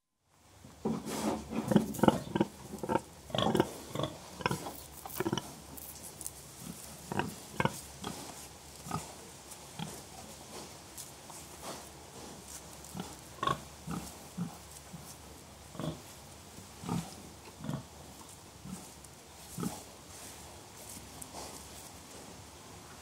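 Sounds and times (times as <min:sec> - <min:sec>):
pigs grunting: 0:01.4 - 0:05.6, 0:06.6 - 0:09.2, 0:12.9 - 0:15.1, 0:15.7 - 0:16.1, 0:16.8 - 0:17.9, 0:19.5 - 0:19.9.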